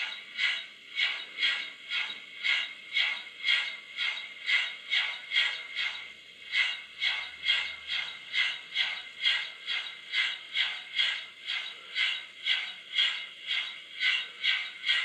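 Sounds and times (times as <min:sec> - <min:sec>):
model steam locomotive chuffing: 0:00.0 - 0:15.0.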